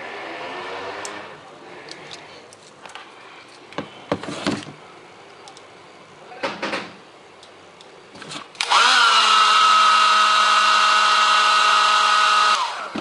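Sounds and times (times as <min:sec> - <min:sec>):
hair dryer fan whine: 0:08.6 - 0:13.0.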